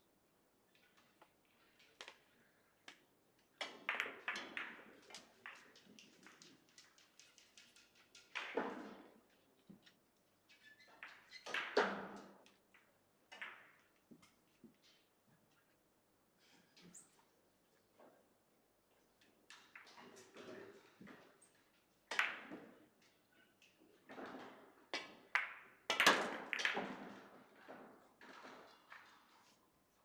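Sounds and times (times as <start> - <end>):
rolling balls clicking and knocking: 0.9 - 14.8, 23.7 - 29.5
billiard balls clacking: 2.9 - 14.8, 24.1 - 29.4.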